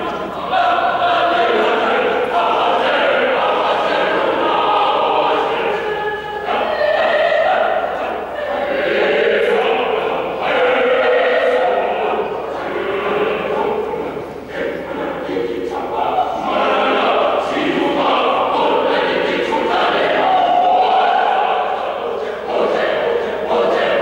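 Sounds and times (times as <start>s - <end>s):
choir singing: 0.0s - 24.0s.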